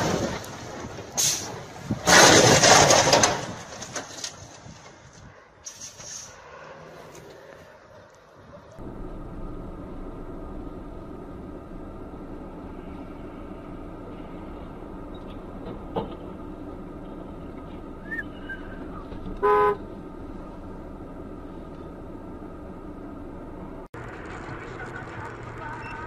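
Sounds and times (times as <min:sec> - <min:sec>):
vehicle driving drone: 0:06.2 - 0:26.0
vehicle horn honk: 0:19.4 - 0:19.8.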